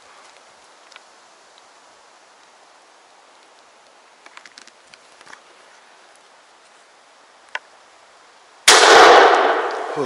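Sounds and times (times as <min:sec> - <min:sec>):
faint clicks and rustles: 0:00.0 - 0:07.8
shotgun shot reverberating: 0:08.7 - 0:10.0.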